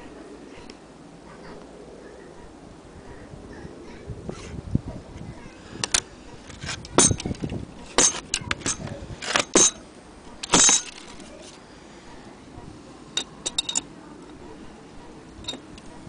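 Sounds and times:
metal clock parts clinking: 6.9s - 9.8s, 10.4s - 11.3s, 13.2s - 13.9s, 15.4s - 15.9s.

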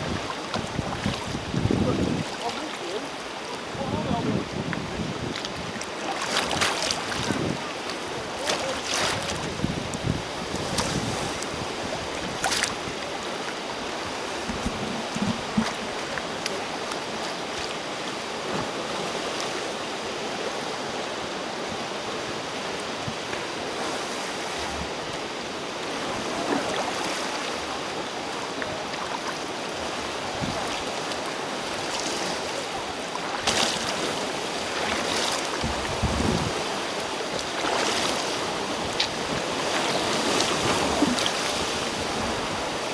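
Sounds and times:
wind buffeting microphone: 0.0s - 2.3s, 3.7s - 5.8s, 6.4s - 8.2s, 9.1s - 13.0s, 35.6s - 36.6s
surf breaking against cliffs: 0.0s - 17.6s
water sloshing around a kayak: 0.0s - 42.9s
sharp splashes: 5.8s - 9.5s, 12.3s - 12.8s.

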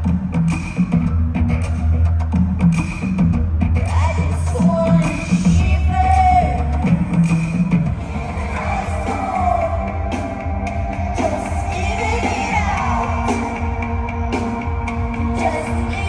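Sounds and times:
live rock music: 0.0s - 16.0s
pulsing bass: 0.0s - 16.0s
person singing: 8.0s - 16.0s.

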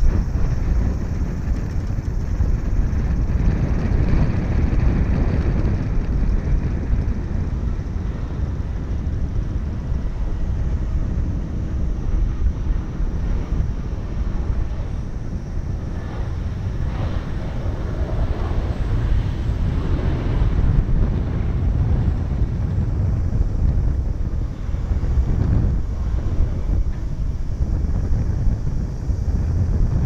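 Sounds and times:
jet engines roaring: 0.0s - 30.0s.

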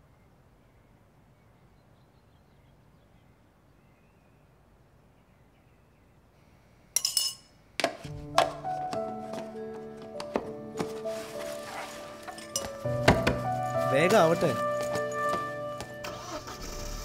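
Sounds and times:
crockery clattering: 11.6s - 15.6s.

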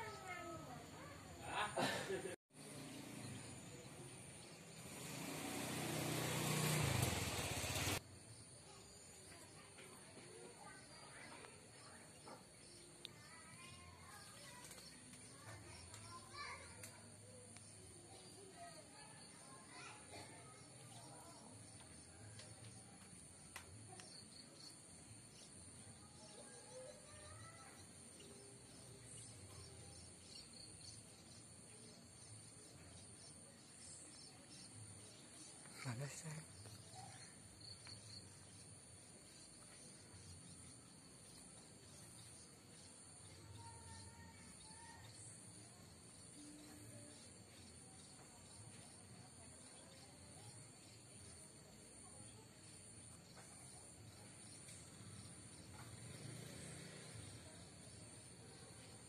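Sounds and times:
vehicle engine running: 2.6s - 8.0s
faint bird chirps: 8.1s - 56.4s
faint click: 23.5s - 24.2s.

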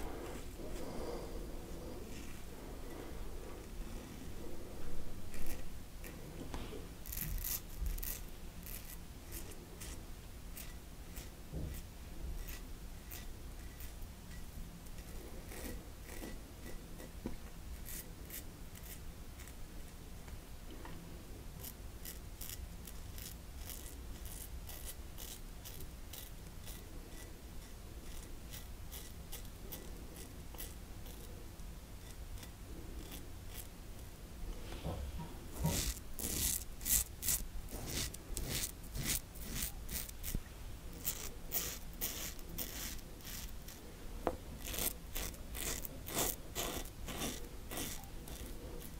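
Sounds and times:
razor scraping stubble: 5.3s - 6.2s, 7.0s - 14.0s, 15.0s - 19.6s, 21.6s - 31.3s, 32.0s - 34.1s, 34.8s - 43.8s, 44.6s - 48.9s.

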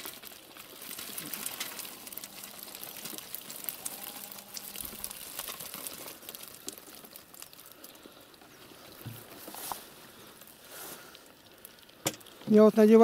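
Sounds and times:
wet netting rustling: 0.0s - 12.5s
small fish pattering into bucket: 0.0s - 12.6s
water dripping into metal bucket: 0.0s - 13.0s.

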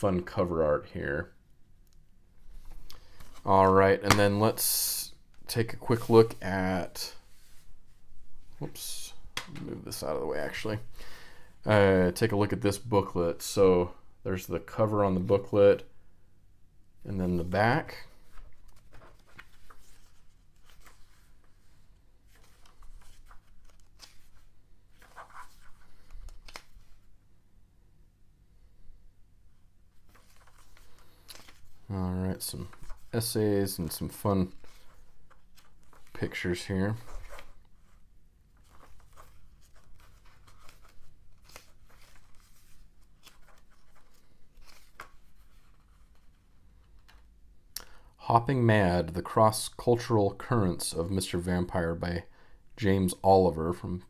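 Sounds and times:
paper pages rustling: 2.5s - 4.4s, 17.4s - 27.1s, 30.0s - 47.3s.

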